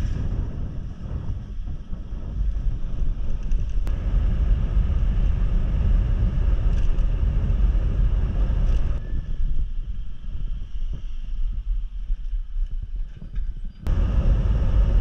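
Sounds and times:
wind rumbling on microphone: 0:00.0 - 0:15.0
faint engine hum: 0:00.9 - 0:11.4, 0:13.0 - 0:15.0
road noise: 0:03.9 - 0:09.0, 0:13.9 - 0:15.0.

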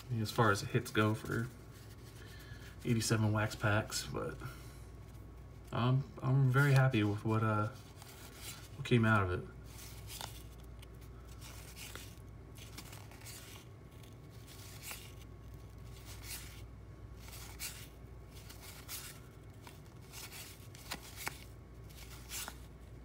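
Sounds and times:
cards flipped papery swish: 0:09.7 - 0:22.9.

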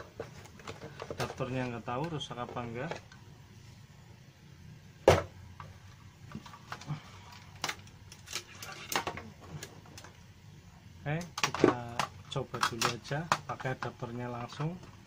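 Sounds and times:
plastic router handling noise: 0:00.0 - 0:03.2, 0:11.3 - 0:14.8.

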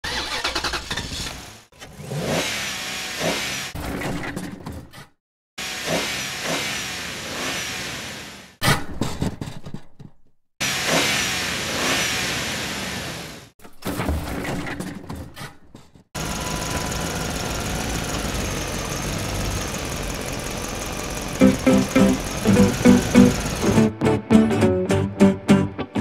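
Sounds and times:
monster truck engine revving: 0:00.0 - 0:03.8, 0:05.6 - 0:08.6, 0:10.6 - 0:13.5, 0:16.2 - 0:23.9
steady even drone: 0:21.4 - 0:23.9.

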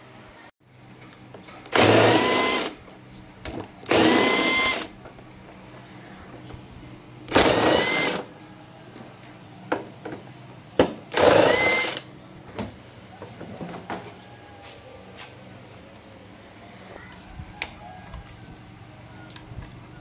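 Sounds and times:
cordless impact wrench: 0:01.7 - 0:02.8, 0:03.9 - 0:04.9, 0:07.3 - 0:08.3, 0:11.1 - 0:12.1.

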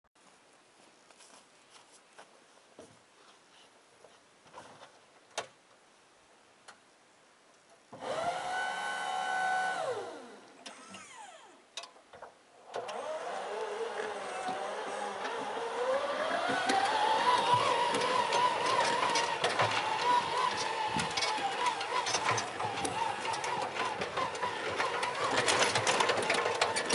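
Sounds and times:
hydraulic pump whining: 0:08.0 - 0:11.6, 0:12.6 - 0:26.9
electric drive whining: 0:08.0 - 0:11.7, 0:12.6 - 0:26.9.

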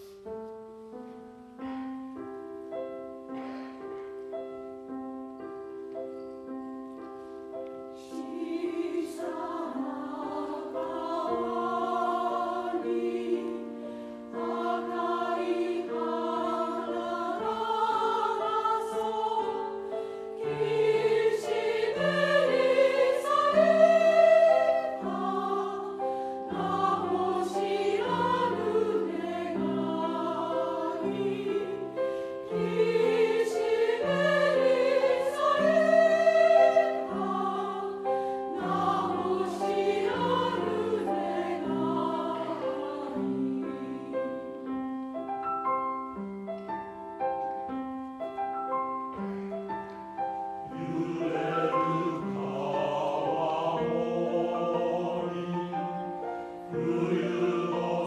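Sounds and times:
piano accompaniment: 0:00.0 - 0:58.0
mixed choir singing: 0:07.9 - 0:45.0, 0:50.6 - 0:58.0.

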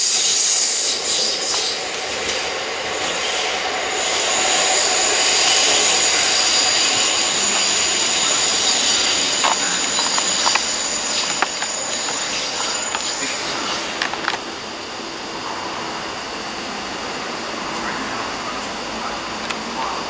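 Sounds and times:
train wheels squealing: 0:00.0 - 0:13.9
rumble of wagons: 0:01.8 - 0:14.6.

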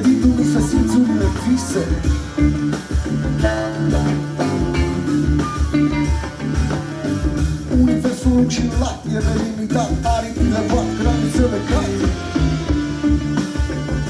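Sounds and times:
bass guitar: 0:00.0 - 0:14.0
congas: 0:00.0 - 0:14.0
drum kit: 0:00.0 - 0:14.0
electric guitar: 0:00.0 - 0:14.0.

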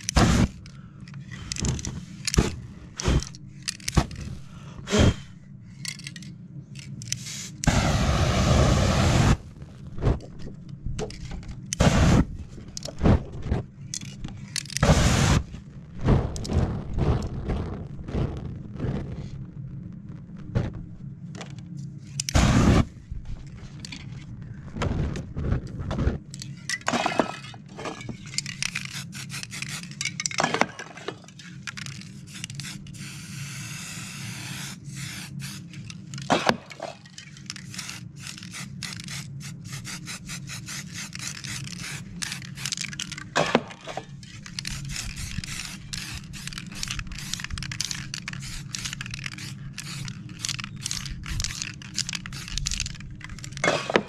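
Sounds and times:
crinkling and scraping by hand: 0:00.0 - 0:07.8, 0:09.4 - 0:33.2, 0:34.6 - 0:54.0
spray-paint can hissing: 0:28.8 - 0:30.0, 0:32.2 - 0:35.6, 0:37.6 - 0:42.7, 0:44.5 - 0:53.0.

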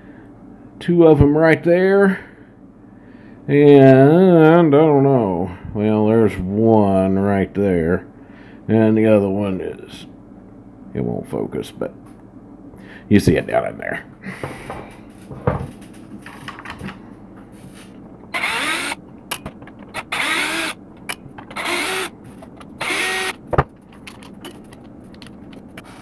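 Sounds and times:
cordless drill backing out screws: 0:18.3 - 0:20.8, 0:21.4 - 0:23.4
small handling clicks and knocks: 0:19.3 - 0:20.1, 0:21.0 - 0:22.8, 0:23.5 - 0:25.9.

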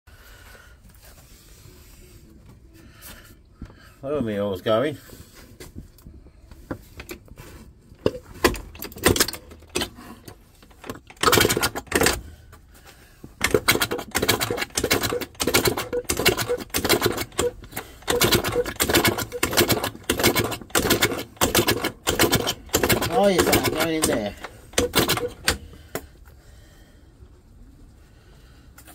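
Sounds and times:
mechanical clicking and rattling: 0:08.0 - 0:12.3, 0:13.4 - 0:26.0.

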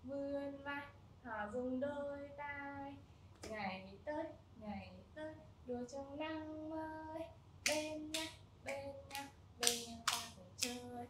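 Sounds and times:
person singing children's song: 0:00.0 - 0:11.0
sharp hand claps: 0:07.6 - 0:10.9.

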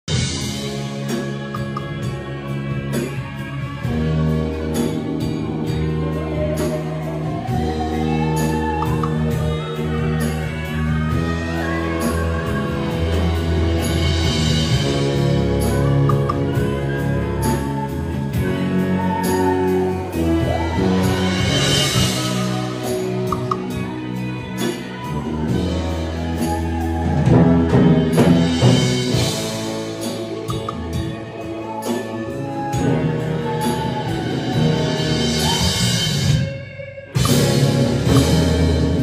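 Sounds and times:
orchestra playing slow piece: 0:00.2 - 0:36.5, 0:37.1 - 0:39.0
woman singing into microphone: 0:05.7 - 0:13.5.

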